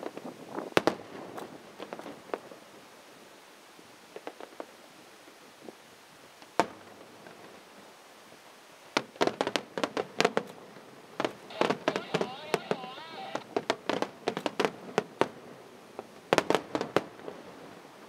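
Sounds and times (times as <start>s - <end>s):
fireworks bangs and bursts: 11.2s - 15.3s.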